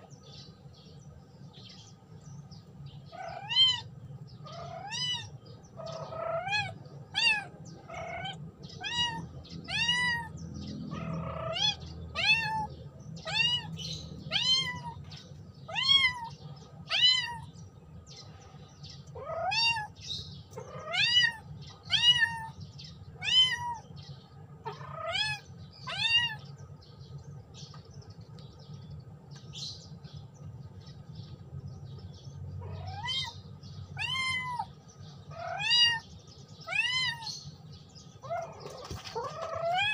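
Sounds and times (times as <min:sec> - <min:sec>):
kitten meowing: 0:06.0 - 0:10.3, 0:10.9 - 0:15.0, 0:15.7 - 0:16.3, 0:16.9 - 0:17.5, 0:19.2 - 0:20.0, 0:20.6 - 0:22.5, 0:23.2 - 0:23.8, 0:24.7 - 0:26.4, 0:32.6 - 0:33.4, 0:34.0 - 0:34.7, 0:35.4 - 0:36.0, 0:36.6 - 0:37.4, 0:38.2 - 0:39.9.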